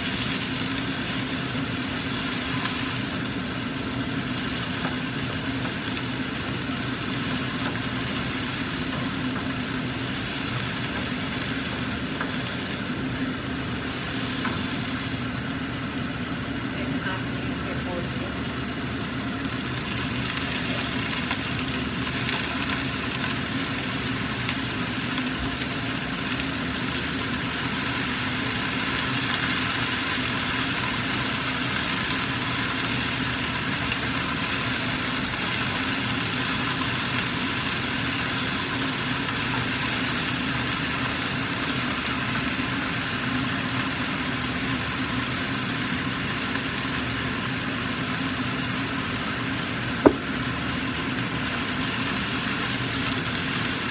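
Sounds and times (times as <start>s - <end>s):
vegetables sizzling in oil: 0.0s - 53.9s.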